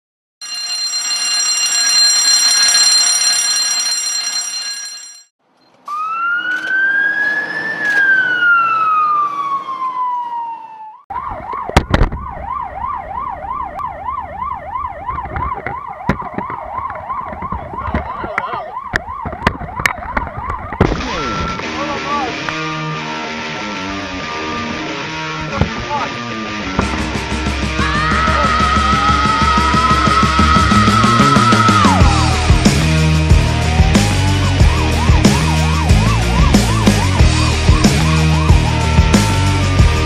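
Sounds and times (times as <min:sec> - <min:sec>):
winding siren: 0:05.8 - 0:21.7, 0:28.0 - 0:32.5, 0:33.6 - 0:40.0
fire engine siren yelping: 0:05.8 - 0:25.6, 0:27.5 - 0:40.0.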